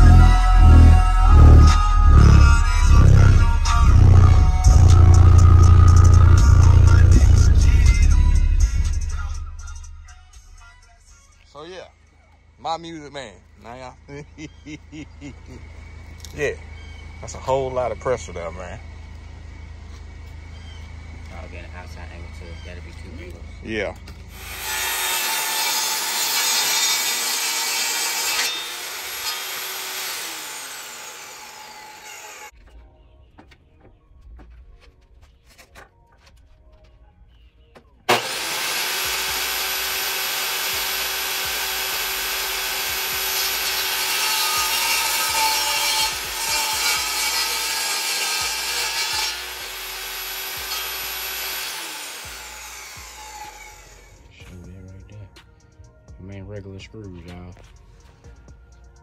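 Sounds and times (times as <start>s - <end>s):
table saw cutting wood: 0.0s - 8.1s, 24.3s - 32.5s, 38.1s - 54.2s.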